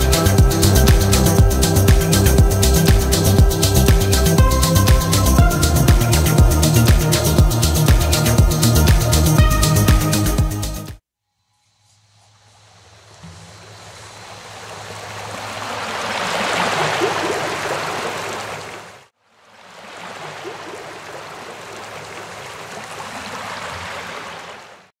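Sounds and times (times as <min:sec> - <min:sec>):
rushing water: 0:12.8 - 0:24.9.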